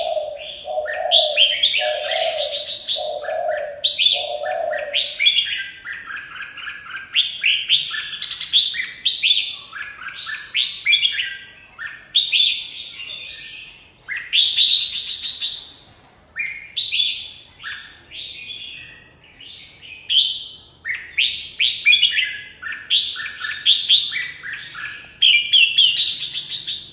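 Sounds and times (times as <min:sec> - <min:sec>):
bird singing whistled phrases: 0:16.4 - 0:26.9.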